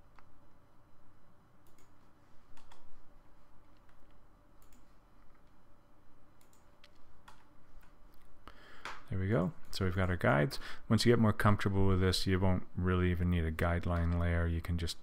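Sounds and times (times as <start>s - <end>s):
faint low hum: 0.0s - 15.0s
computer mouse clicking: 1.6s - 2.9s, 3.6s - 5.6s, 6.4s - 9.0s.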